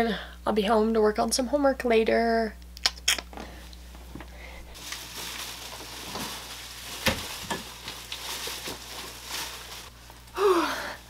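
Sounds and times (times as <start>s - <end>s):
plastic bag crinkling: 4.7s - 10.3s.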